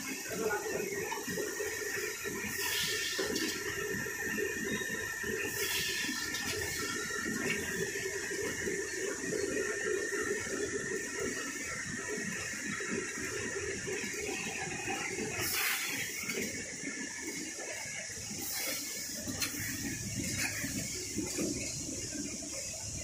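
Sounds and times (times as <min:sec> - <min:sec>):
high machine whine: 0:00.0 - 0:23.0
packing machine clatter and hum: 0:00.0 - 0:23.0.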